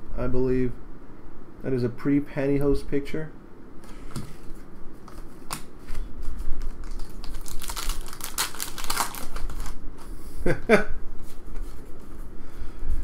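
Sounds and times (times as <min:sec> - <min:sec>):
foil wrapper crinkling and tearing: 0:06.6 - 0:09.8.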